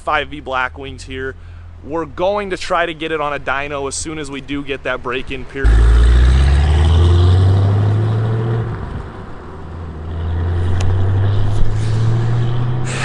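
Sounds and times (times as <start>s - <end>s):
car engine pulling away: 5.6s - 13.0s.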